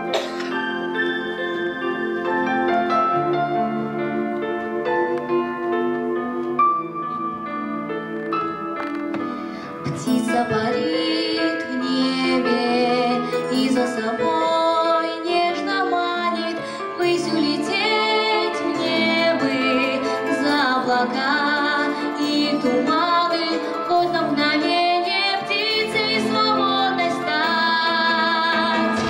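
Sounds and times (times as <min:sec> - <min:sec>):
instrumental accompaniment: 0:00.0 - 0:29.0
girl singing into microphone: 0:09.8 - 0:29.0.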